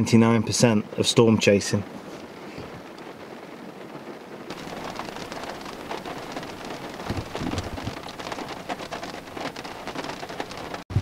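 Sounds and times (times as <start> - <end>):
heavy rain on a car: 0.0 - 11.0
deep thuds: 4.5 - 8.4.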